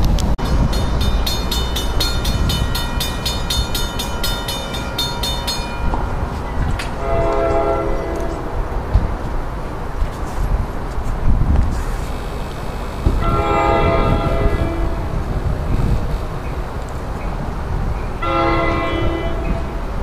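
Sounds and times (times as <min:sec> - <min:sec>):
railroad crossing bells ringing: 0:00.4 - 0:08.5, 0:12.2 - 0:15.5, 0:16.3 - 0:20.0
train horn: 0:07.0 - 0:08.4, 0:13.2 - 0:15.2, 0:18.2 - 0:19.8.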